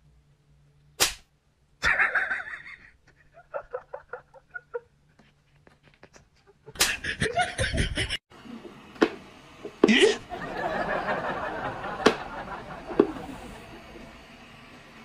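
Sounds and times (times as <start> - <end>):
person laughing: 1.8 - 5.0, 6.0 - 8.2, 9.8 - 13.7.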